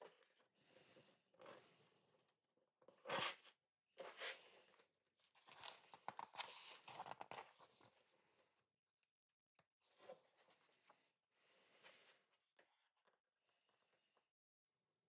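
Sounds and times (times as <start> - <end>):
paper pages rustling and crinkling: 5.3 - 8.0.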